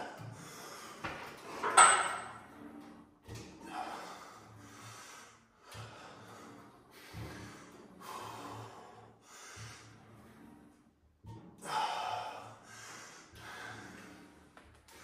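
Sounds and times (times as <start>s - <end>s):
heavy forceful breathing: 0.0s - 1.8s, 3.7s - 10.4s, 11.6s - 15.0s.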